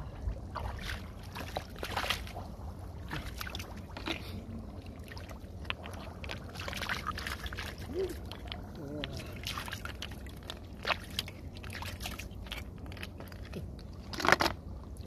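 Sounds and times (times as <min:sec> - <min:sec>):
hands splashing in muddy water: 0:00.5 - 0:02.3, 0:09.0 - 0:12.6.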